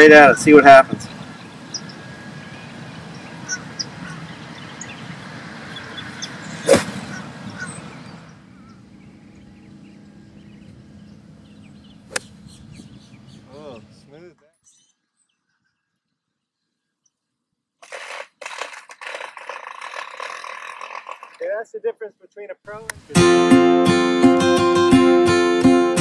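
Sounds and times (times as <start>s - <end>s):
faint bird calls: 1.0s - 17.2s
golf club striking ball: 6.6s - 7.0s, 12.1s - 12.4s.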